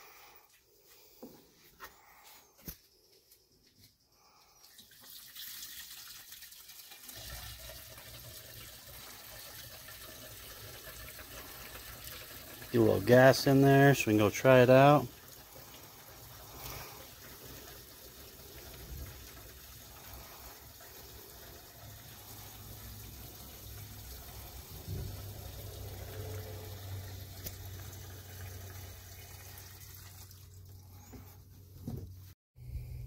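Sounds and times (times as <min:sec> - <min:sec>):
gasoline trickling into tank: 0:04.2 - 0:31.8
low hum: 0:32.6 - 0:33.0.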